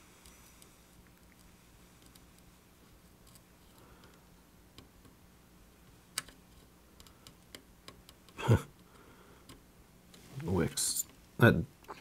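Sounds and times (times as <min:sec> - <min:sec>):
soldering ticks and crackles: 0:03.1 - 0:05.2, 0:05.8 - 0:11.4.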